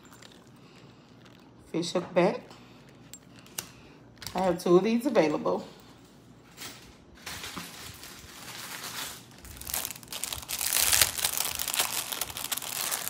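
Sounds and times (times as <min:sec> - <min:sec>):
plastic packaging crinkling: 0:00.0 - 0:01.6, 0:07.2 - 0:13.0.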